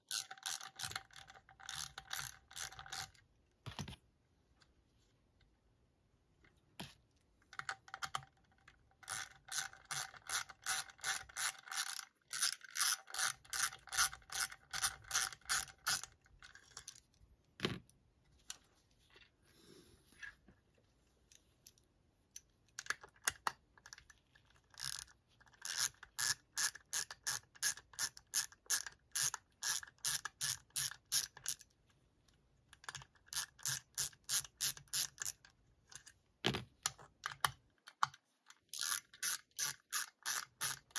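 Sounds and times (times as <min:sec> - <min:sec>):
hand ratchet clicking: 0:38.8 - 0:40.9.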